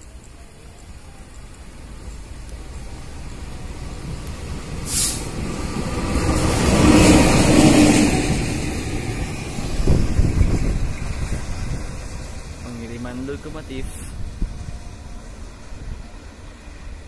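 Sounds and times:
locomotive passing at speed: 0:00.1 - 0:17.0
brief hiss: 0:04.8 - 0:05.4.

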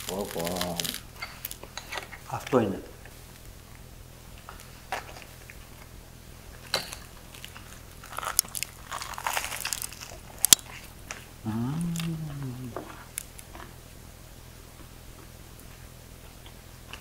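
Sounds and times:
crunching toasted bread: 0:00.0 - 0:01.7, 0:04.5 - 0:12.2, 0:12.9 - 0:13.8
person humming: 0:11.4 - 0:13.1.

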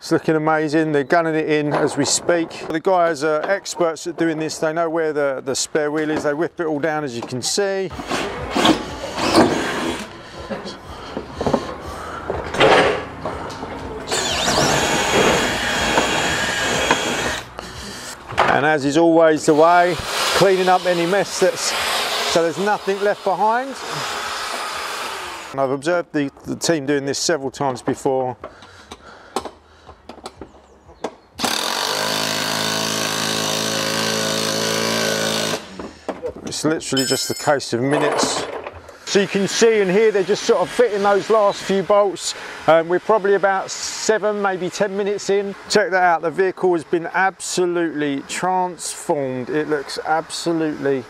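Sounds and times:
cordless drill boring into wood: 0:07.9 - 0:10.1, 0:14.1 - 0:18.2, 0:19.4 - 0:25.6, 0:31.4 - 0:35.8
impact wrench hammering: 0:14.1 - 0:17.5.

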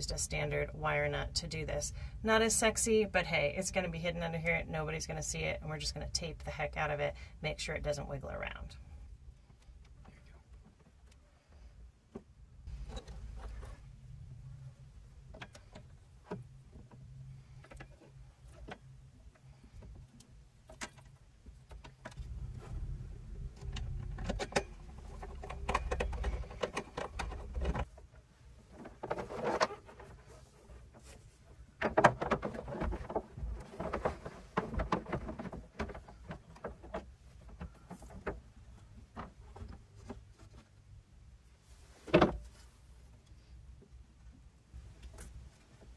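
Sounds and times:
low steady rumble: 0:00.0 - 0:20.7, 0:21.4 - 0:28.7
clicks and rustling of wires: 0:08.4 - 0:45.9.

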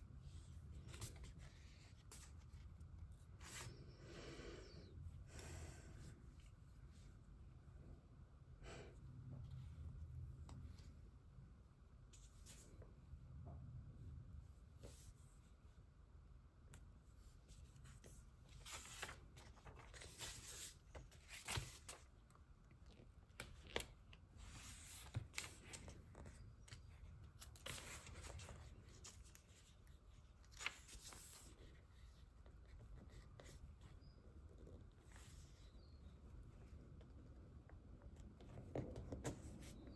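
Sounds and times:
pages turning: 0:00.8 - 0:02.8, 0:17.8 - 0:22.1, 0:22.9 - 0:32.1
paper rustling: 0:17.8 - 0:22.2, 0:23.3 - 0:33.6.

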